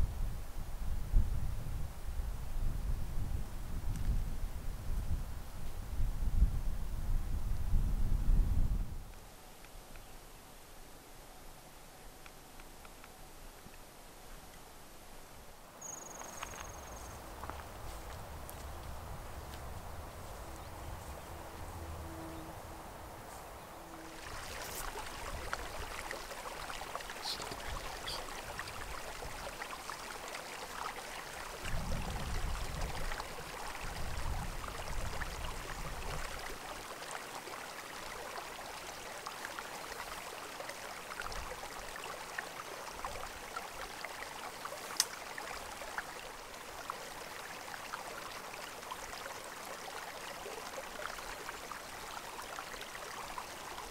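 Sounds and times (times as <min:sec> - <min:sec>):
wind rumble on microphone: 0:00.0 - 0:09.1, 0:17.0 - 0:26.1, 0:31.5 - 0:36.6
creek water rushing: 0:16.4 - 0:53.9.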